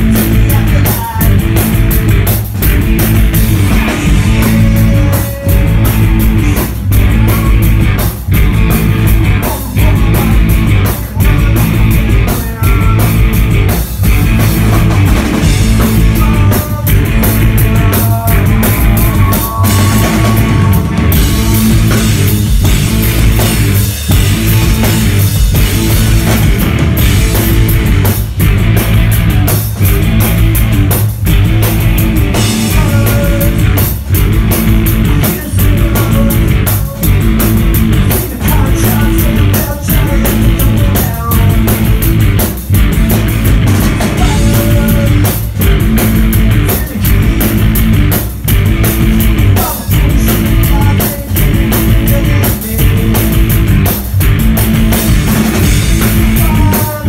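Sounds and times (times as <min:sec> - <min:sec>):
drum kit beat: 0:00.0 - 0:57.0
electric bass: 0:00.0 - 0:57.0
person singing: 0:00.2 - 0:01.4, 0:03.7 - 0:07.8, 0:09.3 - 0:13.3, 0:16.0 - 0:22.1, 0:32.4 - 0:33.8, 0:35.0 - 0:37.3, 0:38.0 - 0:41.8, 0:44.2 - 0:47.3, 0:49.4 - 0:53.4, 0:56.1 - 0:57.0.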